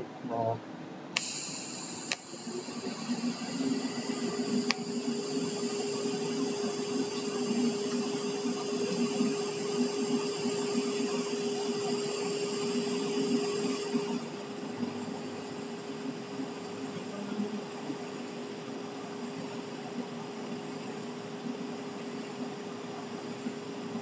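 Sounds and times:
steady hum: 0.0 - 24.0
welding arc hissing: 1.2 - 19.7.

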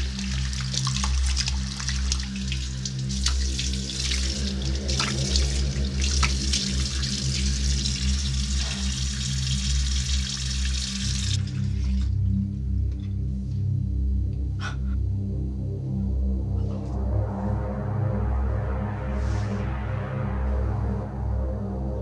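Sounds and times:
faucet running: 0.0 - 12.1
water splashing into basin: 0.0 - 12.1
low background music drone: 0.0 - 22.0.

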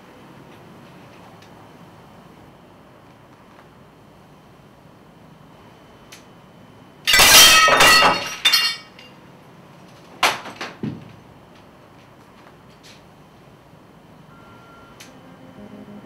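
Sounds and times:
crockery clatter: 7.1 - 9.0
glass and crockery crashing: 7.1 - 9.1.

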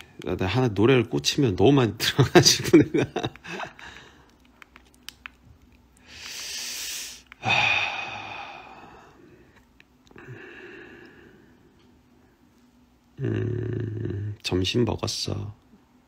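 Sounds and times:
man breathing out: 6.1 - 9.5, 10.2 - 11.7.

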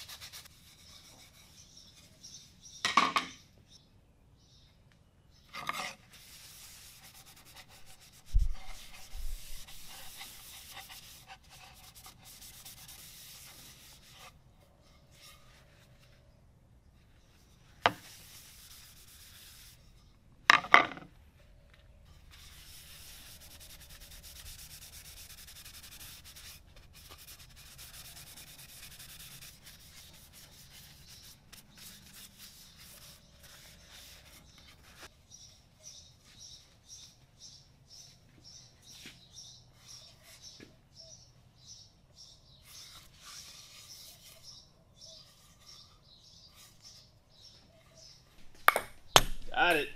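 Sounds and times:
cloth wiping wood: 6.1 - 14.3, 17.9 - 20.0, 22.3 - 35.1.

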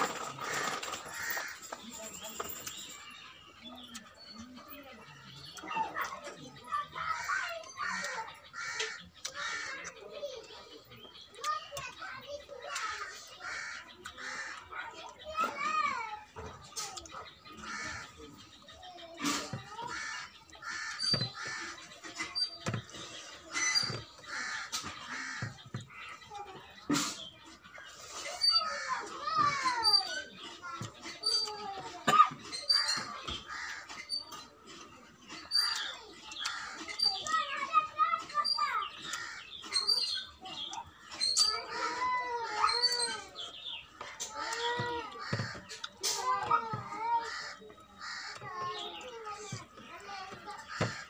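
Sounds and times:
birds chirping: 0.0 - 51.0
crows cawing: 0.5 - 1.7, 7.8 - 10.0, 12.7 - 14.7, 17.6 - 18.2, 19.8 - 21.9, 24.3 - 26.1, 32.8 - 34.0, 46.6 - 48.8.

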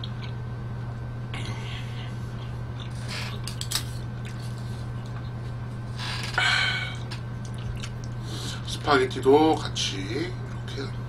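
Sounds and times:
steady low hum: 0.0 - 11.0
chewing food: 2.3 - 5.5, 7.0 - 8.3, 10.4 - 11.0
wet clicks and crackles: 7.1 - 8.2.

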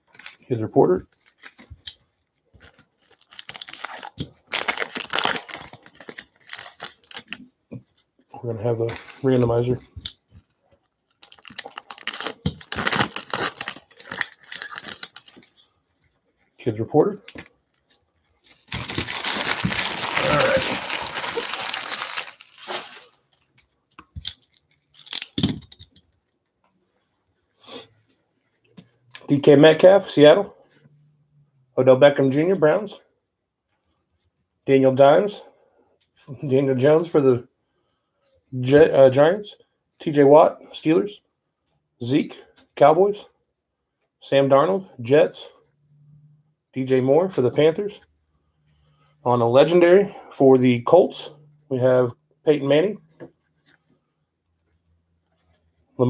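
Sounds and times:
foil wrapper tearing and crinkling: 3.0 - 7.4, 11.2 - 15.4, 18.6 - 23.2
cards rustling and tapping: 17.2 - 26.1.

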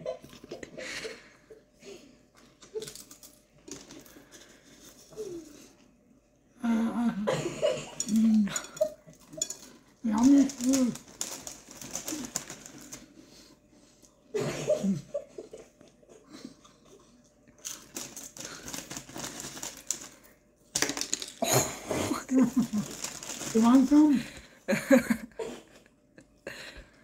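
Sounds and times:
potato chips crunching: 2.8 - 4.4, 9.2 - 13.1, 16.6 - 21.4, 22.3 - 24.2.

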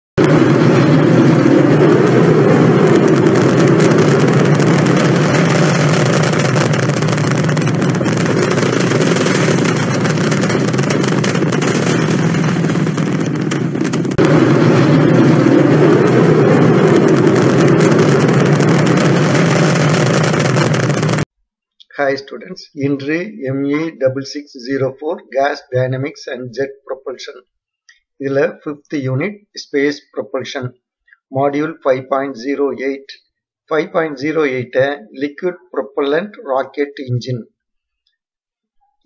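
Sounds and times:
rocket engines rumbling: 0.2 - 21.3, 33.7 - 37.0.

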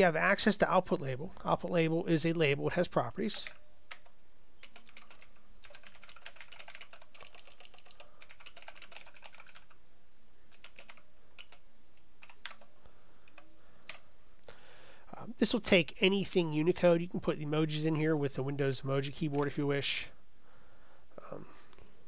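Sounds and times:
typing on computer keyboard: 3.4 - 9.8, 10.5 - 11.6, 12.2 - 14.0.

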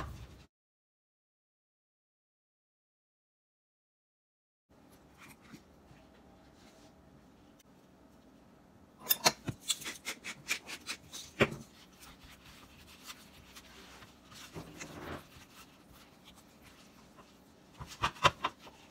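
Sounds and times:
hands rubbing squash: 9.7 - 18.9.

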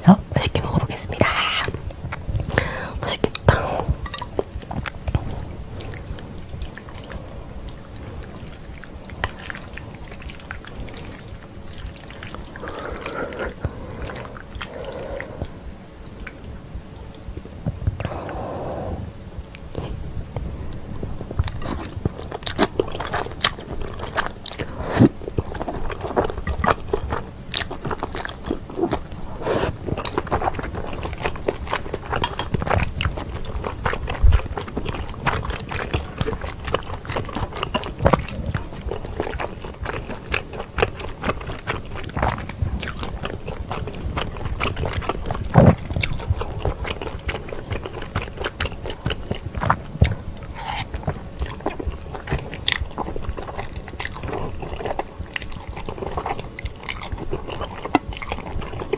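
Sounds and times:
wet chewing with mouth clicks: 0.0 - 58.9
noodles slurped: 2.5 - 15.6.

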